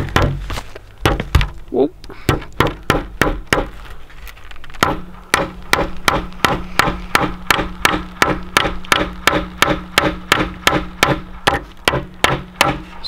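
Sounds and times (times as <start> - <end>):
hammer driving nails into wood: 2.3 - 3.8, 4.8 - 13.0.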